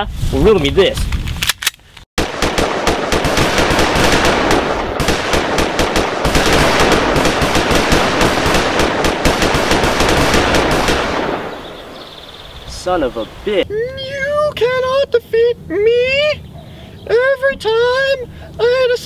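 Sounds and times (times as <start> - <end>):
machine-gun fire: 2.2 - 12.2.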